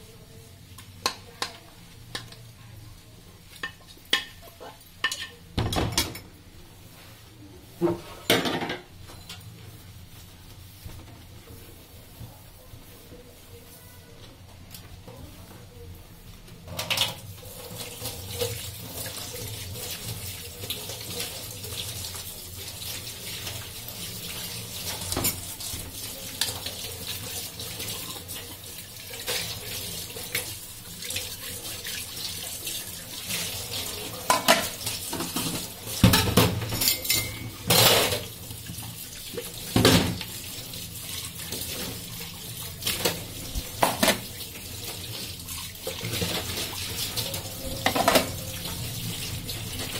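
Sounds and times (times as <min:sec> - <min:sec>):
dishes clattering against sink: 0:03.6 - 0:06.3, 0:07.8 - 0:09.5, 0:16.7 - 0:17.2, 0:24.9 - 0:25.5, 0:34.2 - 0:38.3, 0:42.9 - 0:44.4, 0:45.9 - 0:48.6
tap water running into sink: 0:16.7 - 0:49.9.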